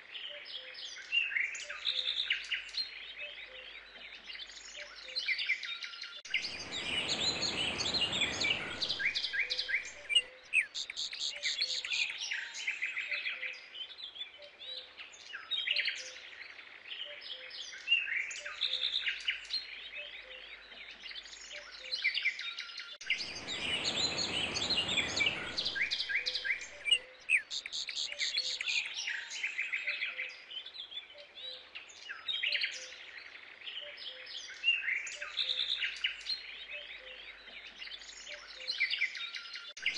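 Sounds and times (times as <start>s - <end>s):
small birds chirping and trilling: 0.0s - 39.9s
rushing noise: 6.4s - 9.8s.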